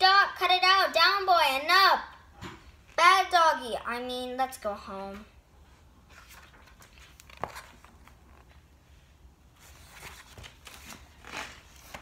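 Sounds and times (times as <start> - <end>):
book pages flipping and rustling: 5.0 - 8.8, 9.5 - 12.0.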